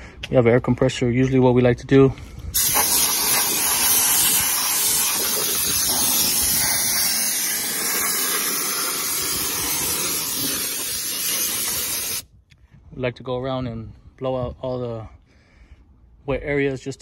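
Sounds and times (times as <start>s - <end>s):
compressed air gun hissing: 2.6s - 12.2s.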